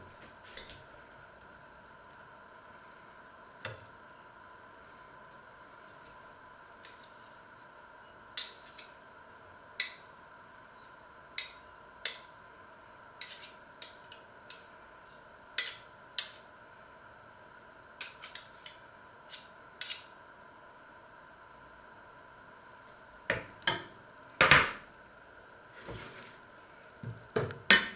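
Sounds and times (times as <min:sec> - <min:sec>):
faint steady hum: 0:00.0 - 0:27.9.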